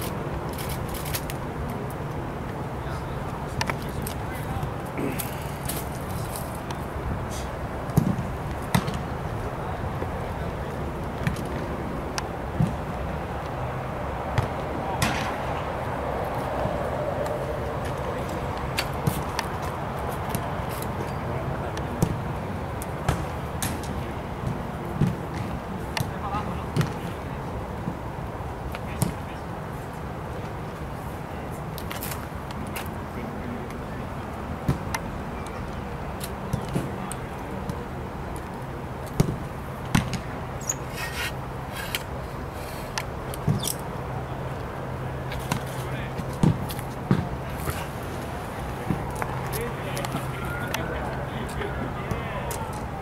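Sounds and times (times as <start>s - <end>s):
steady low outdoor hum: 0.0s - 53.0s
footballs being kicked: 45.5s - 47.8s.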